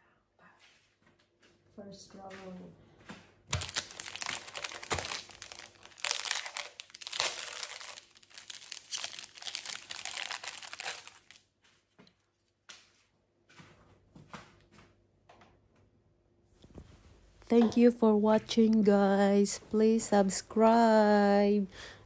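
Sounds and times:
packaging crinkling and tearing: 0:03.5 - 0:11.5.

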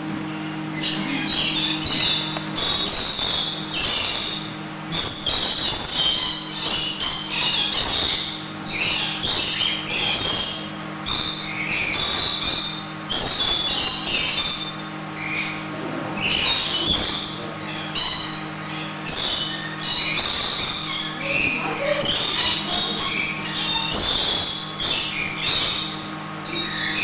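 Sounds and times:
steady low hum: 0:00.0 - 0:27.0
parrots screeching and chattering: 0:00.7 - 0:27.0.

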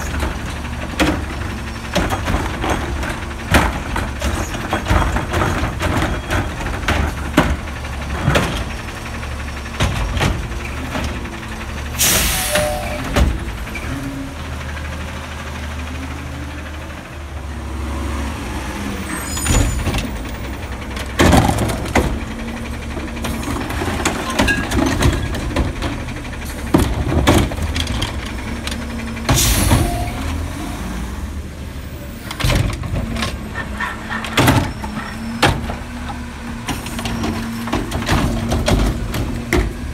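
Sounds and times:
garbage truck diesel engine running: 0:00.0 - 0:39.9
air brakes hissing: 0:12.0 - 0:13.0, 0:29.3 - 0:30.4.

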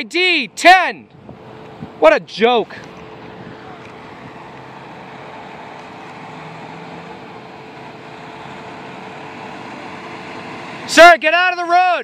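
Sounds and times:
truck engine humming: 0:00.0 - 0:12.0.

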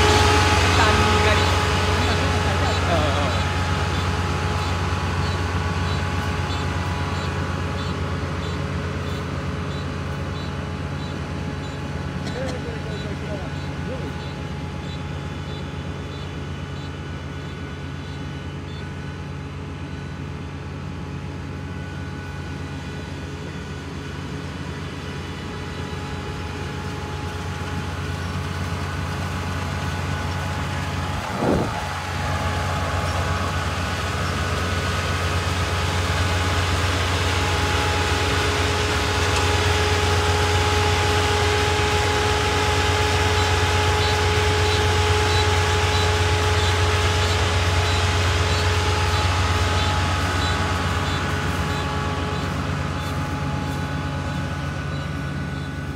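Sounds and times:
combine harvester drone: 0:00.0 - 0:55.9
thin steady whines: 0:00.0 - 0:55.9.

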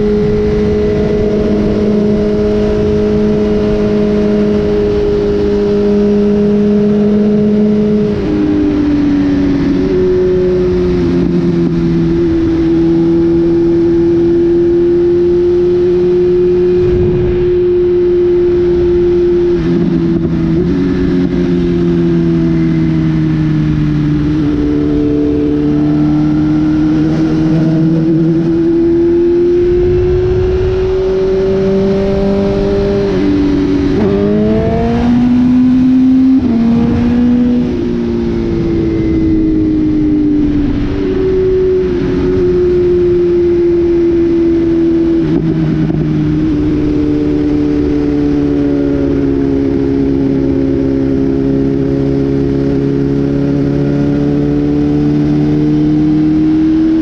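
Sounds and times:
motorcycle engine cruising: 0:00.0 - 0:57.0
wind rushing: 0:16.5 - 0:21.7, 0:26.4 - 0:47.5.

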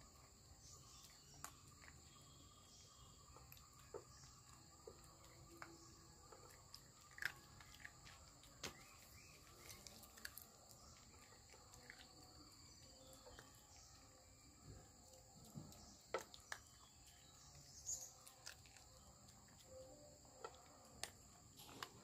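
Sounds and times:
kibble crunching in metal bowl: 0:03.5 - 0:14.1, 0:15.1 - 0:22.0.

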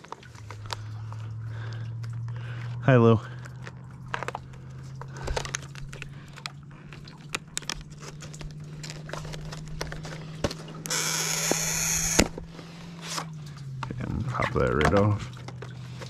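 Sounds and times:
packaging crinkling and crackling: 0:00.0 - 0:01.4, 0:02.1 - 0:13.1
plastic sleeve sliding and snapping: 0:07.3 - 0:10.6.

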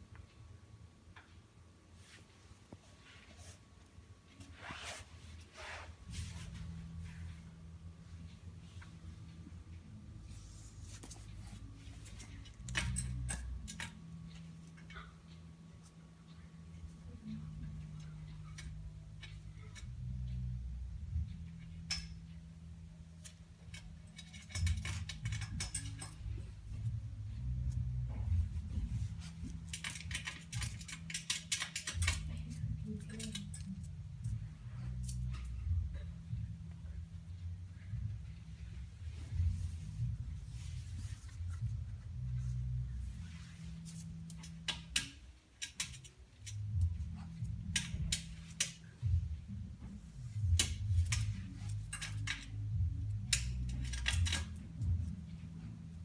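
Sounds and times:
low steady hum: 0:00.0 - 0:56.0
dog claws scratching and tapping: 0:23.2 - 0:26.5, 0:29.2 - 0:34.4, 0:43.9 - 0:48.9, 0:50.5 - 0:55.1.

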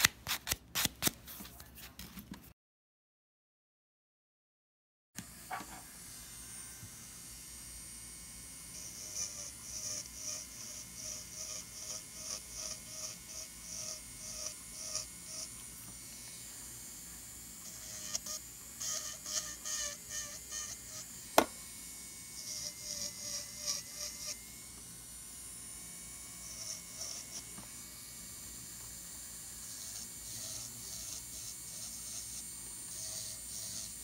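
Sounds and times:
electric nail drill whine: 0:05.2 - 0:34.0
drill bit scraping skin: 0:08.7 - 0:21.6, 0:22.4 - 0:24.9, 0:25.9 - 0:34.0.

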